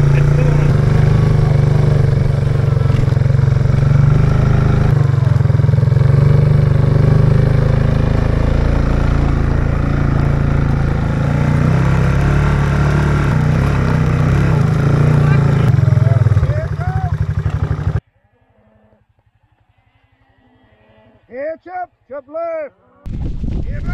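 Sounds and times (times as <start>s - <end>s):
quad bike engine running: 0.0s - 18.0s.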